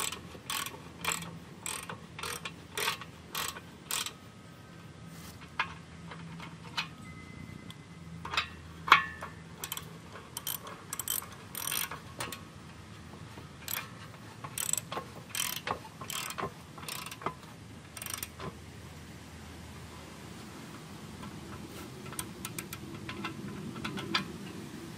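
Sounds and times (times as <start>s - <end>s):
ratchet wrench clicking: 0.0s - 4.2s, 8.2s - 12.4s, 13.6s - 18.6s, 22.1s - 24.2s.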